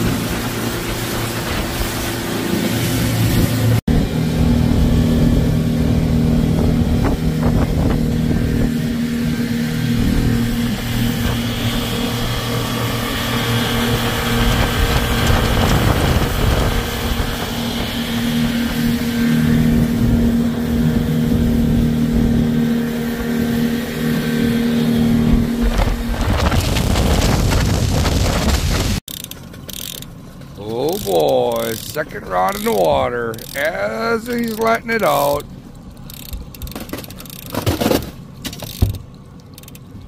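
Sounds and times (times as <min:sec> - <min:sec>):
rush of wind and water: 0:00.0 - 0:29.0
outboard motor drone: 0:00.0 - 0:40.0.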